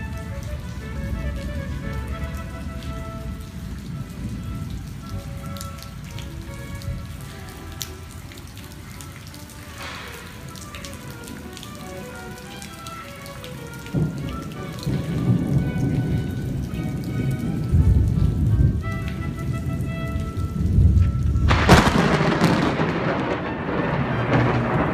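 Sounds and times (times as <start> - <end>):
thunder rumbling: 0.0 - 7.2, 9.7 - 11.3, 13.9 - 24.9
soft music with held notes: 0.0 - 21.6
rain falling: 0.0 - 24.9.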